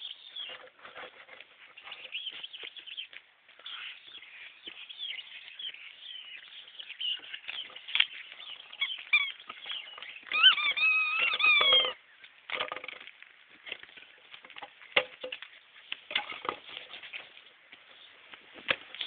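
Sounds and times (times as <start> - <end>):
puppy whining: 8.8 - 9.4, 10.2 - 12.0.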